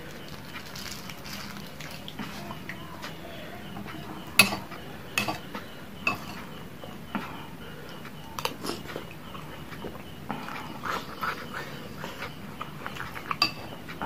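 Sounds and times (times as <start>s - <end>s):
chewing and slurping: 0.0s - 14.0s
spoon clinking ceramic bowl: 4.2s - 5.4s, 6.0s - 6.4s, 13.3s - 13.7s.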